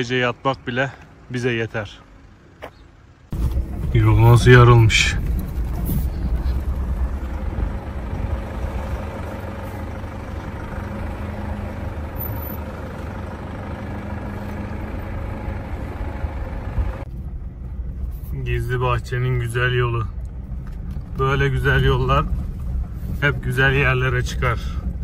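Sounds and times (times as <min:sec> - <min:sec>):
vehicle engine and tyres rumbling: 0:00.0 - 0:25.0.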